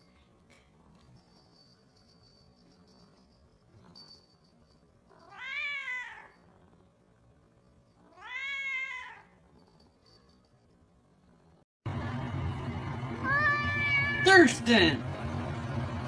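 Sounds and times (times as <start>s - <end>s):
cat meowing: 5.2s - 6.3s, 8.1s - 9.3s, 13.2s - 14.3s.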